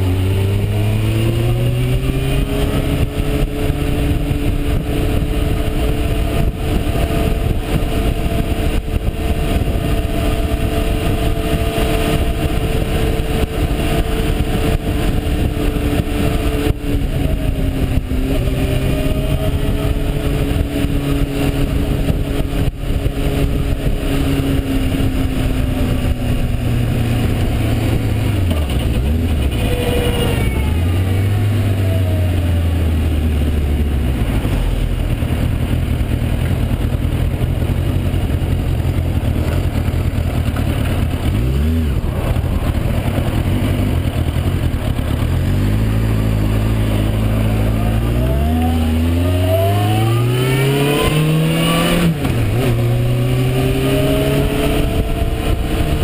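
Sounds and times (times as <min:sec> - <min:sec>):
motorcycle engine revving: 0:00.0 - 0:56.0
wind and road noise: 0:00.0 - 0:56.0.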